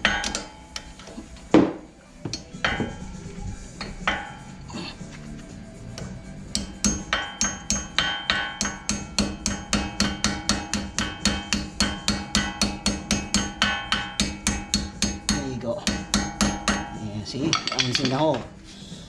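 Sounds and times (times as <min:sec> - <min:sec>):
hammer tapping metal pin: 0:00.0 - 0:01.0, 0:06.0 - 0:18.2.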